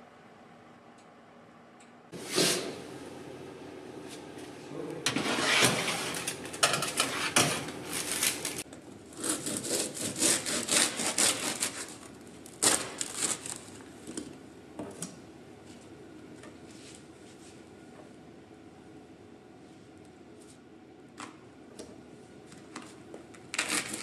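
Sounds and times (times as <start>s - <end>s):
metal baking tray scraping: 5.1s - 8.6s
bread knife sawing through crusty loaf: 7.0s - 8.6s, 9.2s - 12.0s.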